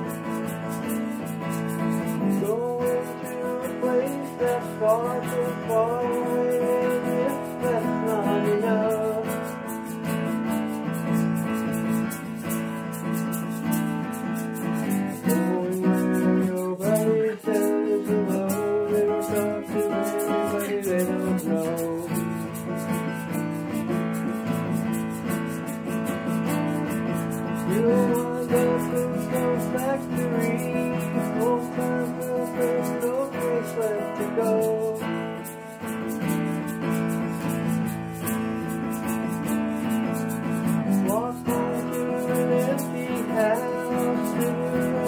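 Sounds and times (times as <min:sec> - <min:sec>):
acoustic guitar strumming: 0:00.0 - 0:45.0
man singing: 0:01.7 - 0:10.0, 0:14.6 - 0:23.8, 0:27.5 - 0:37.6, 0:40.6 - 0:45.0.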